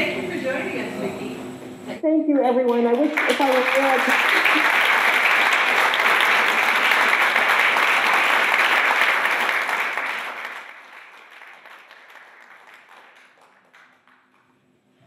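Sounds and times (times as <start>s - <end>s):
audience applauding: 2.7s - 14.5s.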